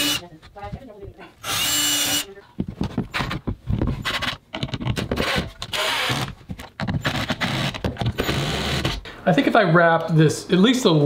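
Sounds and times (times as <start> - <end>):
cordless drill driving screws: 0.0 - 0.2, 1.4 - 2.3, 5.2 - 6.4, 7.0 - 9.0
knocks and handling noise: 0.2 - 1.4, 2.3 - 9.0.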